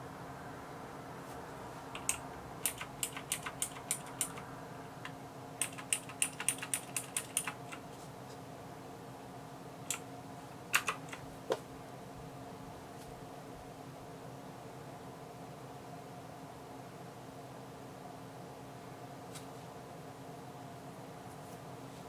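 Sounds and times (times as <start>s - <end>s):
mechanical keyboard key clicks: 2.0s - 4.4s, 5.6s - 7.8s, 10.7s - 11.2s.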